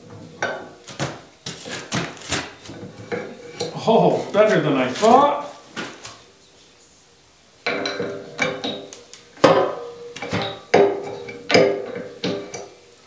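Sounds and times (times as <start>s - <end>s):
sharp metal knocks: 7.7s - 12.7s.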